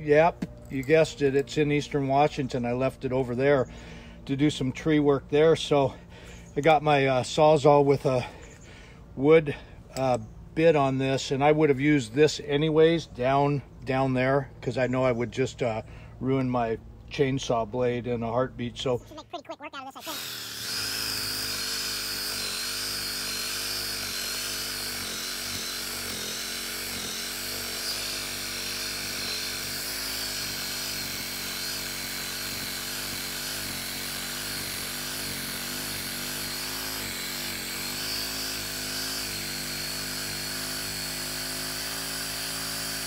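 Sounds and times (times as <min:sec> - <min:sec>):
reciprocating saw cutting wood: 0:19.8 - 0:43.0.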